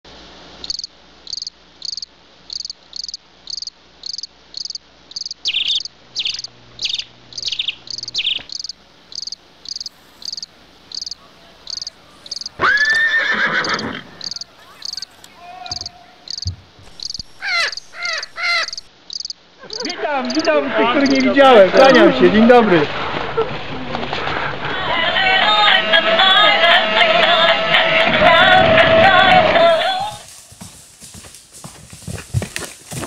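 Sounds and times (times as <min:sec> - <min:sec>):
crickets chirping: 0:00.6 - 0:22.0
loud animal call: 0:05.6 - 0:20.5.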